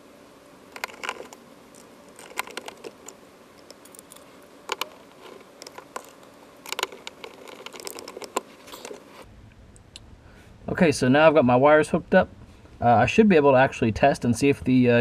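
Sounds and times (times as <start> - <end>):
screwdriver clicks and scrapes: 0.8 - 9.2.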